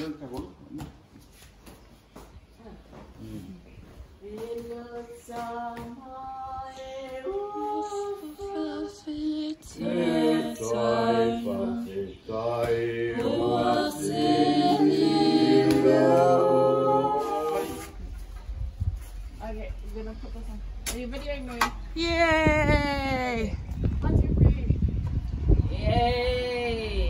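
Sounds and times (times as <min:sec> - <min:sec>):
voices singing in harmony: 0:04.2 - 0:18.3.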